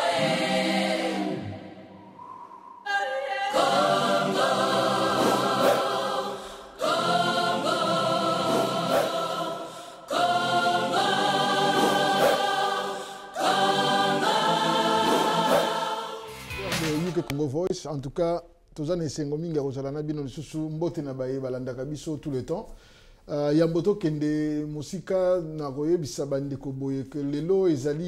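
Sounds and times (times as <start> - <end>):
gospel choir singing chords: 0.0 - 17.6.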